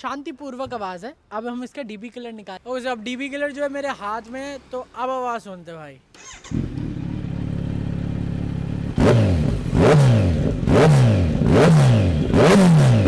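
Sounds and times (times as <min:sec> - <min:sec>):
motorcycle engine idling and revving: 0:06.2 - 0:13.0.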